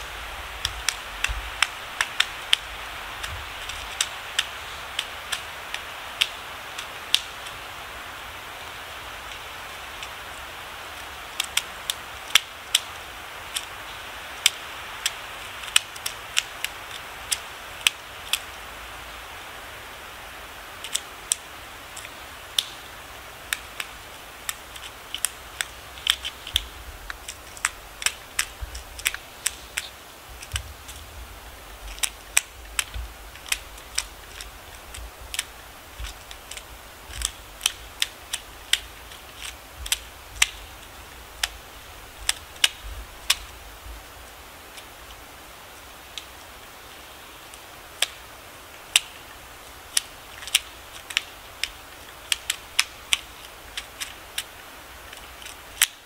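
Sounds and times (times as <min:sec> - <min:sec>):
woodpecker tapping on bark: 0:23.5 - 0:31.1, 0:31.8 - 0:43.5, 0:48.9 - 0:56.0.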